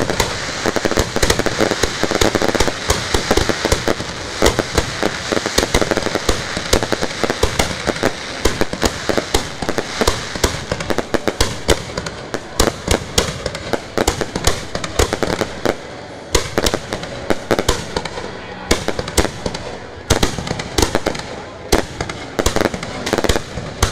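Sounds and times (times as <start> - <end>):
fireworks hiss: 0.0 - 18.2
fireworks bangs and crackles: 0.0 - 23.9.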